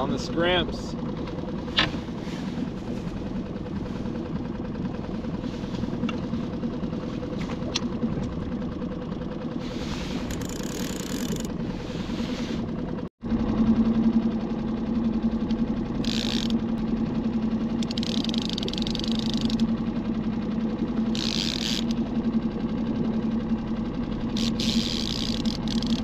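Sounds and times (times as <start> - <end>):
outboard motor idling: 0.0 - 26.0.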